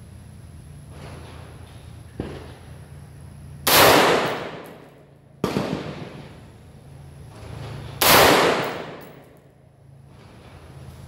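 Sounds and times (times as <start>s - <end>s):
rifle shots with long echo: 3.7s - 6.5s, 8.0s - 9.4s.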